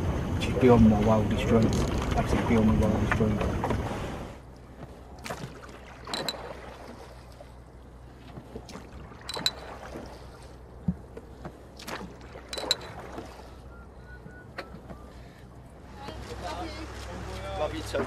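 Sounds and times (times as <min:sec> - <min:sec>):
oar blades splashing: 0:04.6 - 0:15.3.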